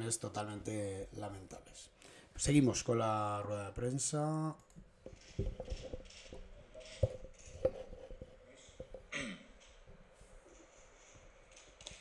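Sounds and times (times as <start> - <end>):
faint clicks and knocks: 4.6 - 12.0.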